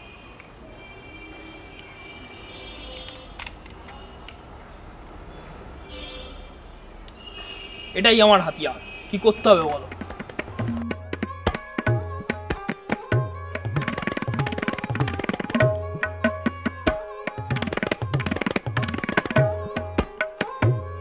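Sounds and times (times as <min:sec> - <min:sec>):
held melodic tones: 0:09.7 - 0:21.0
tabla drumming: 0:09.8 - 0:21.0
deep bass drum notes: 0:09.9 - 0:12.4.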